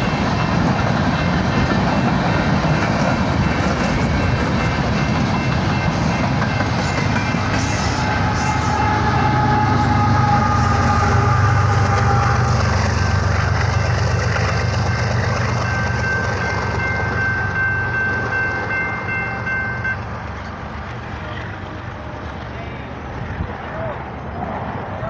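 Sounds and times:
diesel locomotives rumbling past: 0:00.0 - 0:25.0
locomotive horn chord: 0:06.8 - 0:13.6.

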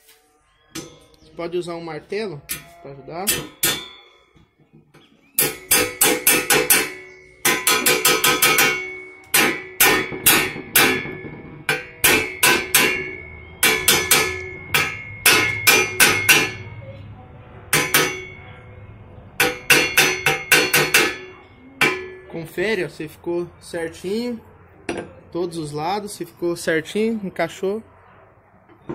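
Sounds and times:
hammer striking metal: 0:02.4 - 0:04.4, 0:05.4 - 0:18.8, 0:19.4 - 0:22.5.

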